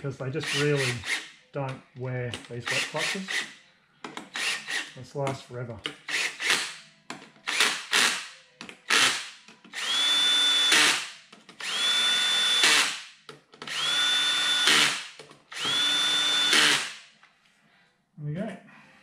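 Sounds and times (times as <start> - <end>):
cordless drill whining: 0.4 - 1.4, 2.6 - 3.5, 4.3 - 5.0, 6.1 - 6.8, 8.9 - 13.0, 13.6 - 17.0
drill rattle: 2.5 - 3.5, 4.2 - 5.0, 8.9 - 13.0, 13.6 - 17.0.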